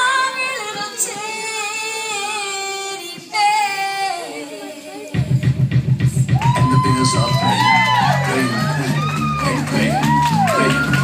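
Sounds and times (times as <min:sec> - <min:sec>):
steady bass beat: 0:05.2 - 0:11.0.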